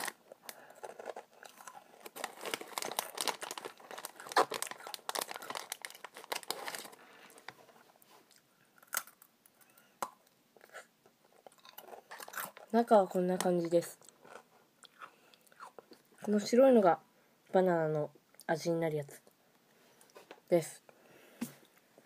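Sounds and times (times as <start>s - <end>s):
crunching and chewing biscuit: 0.0s - 7.4s, 8.3s - 9.7s, 10.6s - 12.8s, 13.9s - 16.3s
plastic bag crinkling: 0.0s - 7.6s.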